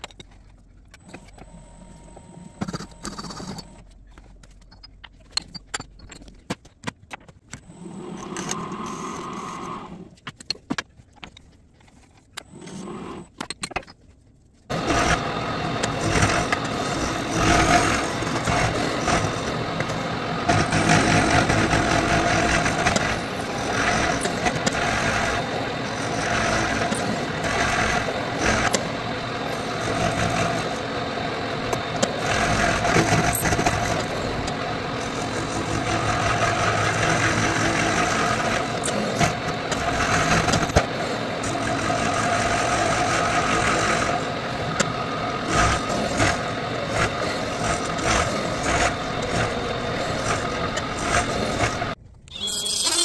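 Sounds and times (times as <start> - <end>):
milling machine cutting metal: 14.7 - 53.0.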